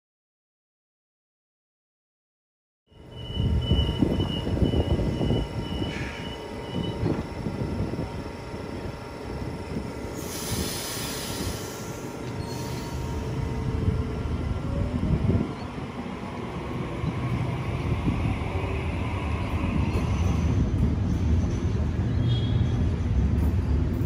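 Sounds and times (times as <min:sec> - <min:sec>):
train wheels rumbling on rails: 0:03.0 - 0:24.0
train hiss: 0:05.8 - 0:06.4, 0:10.0 - 0:14.8.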